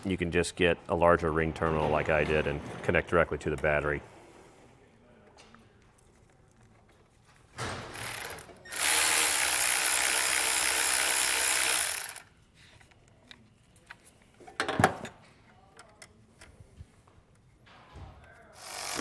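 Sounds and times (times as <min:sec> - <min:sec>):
electric ratchet running: 0:07.9 - 0:12.3, 0:18.6 - 0:19.0.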